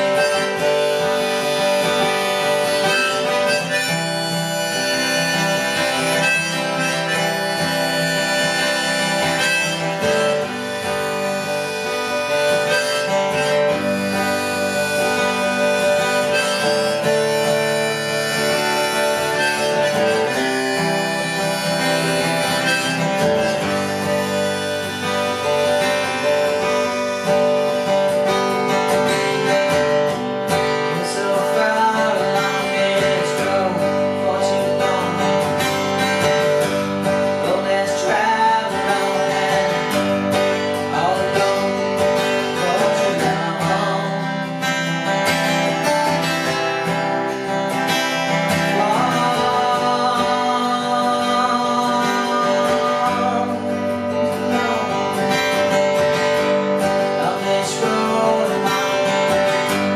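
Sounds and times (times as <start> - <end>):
acoustic guitar strumming: 0.0 - 59.9
man singing: 0.0 - 59.9.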